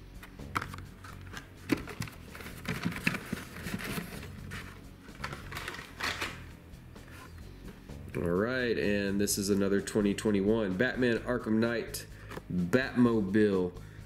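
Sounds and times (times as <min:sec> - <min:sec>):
plastic and cardboard clicks and rustles: 0:00.2 - 0:06.4.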